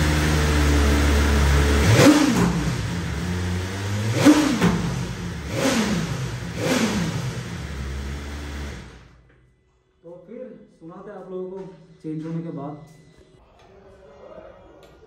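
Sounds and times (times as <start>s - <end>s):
motorcycle engine revving: 0.0s - 9.2s.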